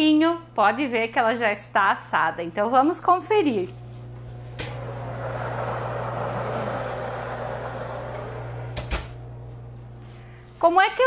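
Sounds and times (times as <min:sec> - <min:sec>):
oven fan whoosh and hum: 0:02.6 - 0:11.0
oven door click: 0:08.7 - 0:09.2.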